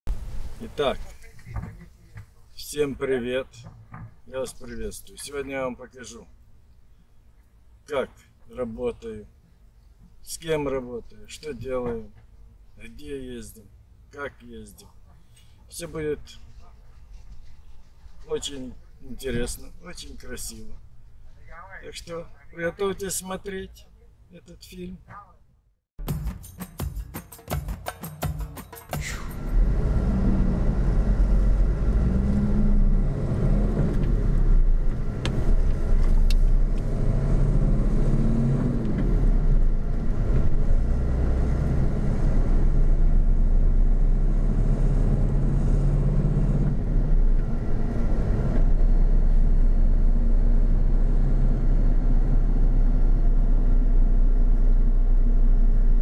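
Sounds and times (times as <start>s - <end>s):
road noise: 0.1s - 25.7s, 29.0s - 56.0s
truck engine rumble: 29.0s - 56.0s.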